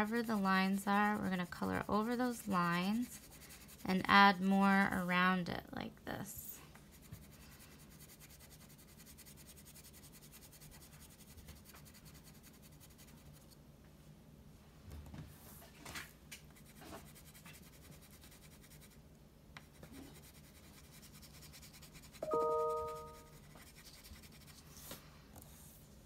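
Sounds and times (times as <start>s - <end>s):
crayon scratching on paper: 0.0s - 4.2s, 6.9s - 13.6s, 16.6s - 19.0s, 19.6s - 25.0s.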